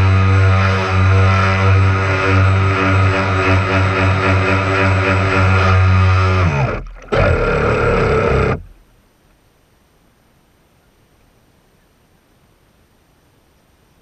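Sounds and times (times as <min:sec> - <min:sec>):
model boat motor buzzing: 0:00.0 - 0:08.8.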